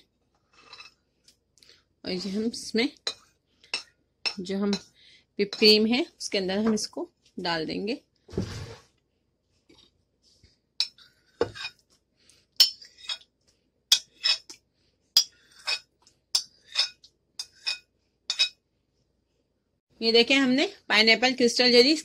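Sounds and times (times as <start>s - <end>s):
metal spoon clinking on bowls: 3.0s - 4.9s, 10.8s - 11.8s, 12.6s - 13.2s, 15.2s - 15.8s, 16.4s - 18.6s.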